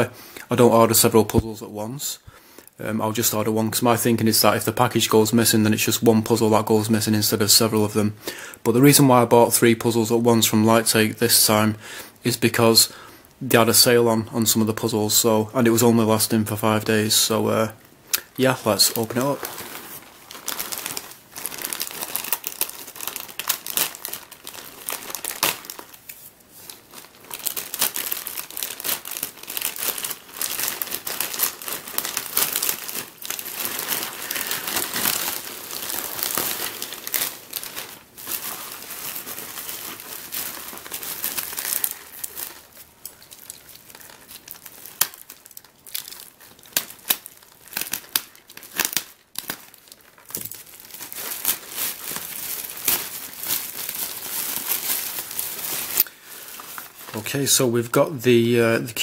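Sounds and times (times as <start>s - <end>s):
plastic crinkling and rustling: 14.4s - 59.0s.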